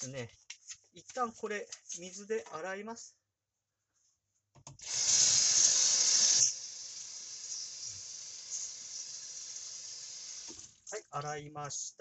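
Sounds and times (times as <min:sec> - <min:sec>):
water running into sink: 0:04.8 - 0:10.9.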